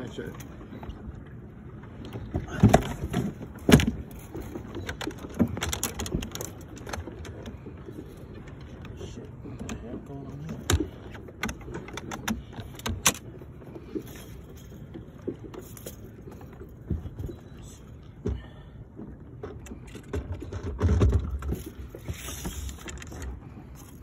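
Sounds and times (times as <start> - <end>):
knocks and rattles on boat deck: 0.0 - 23.4.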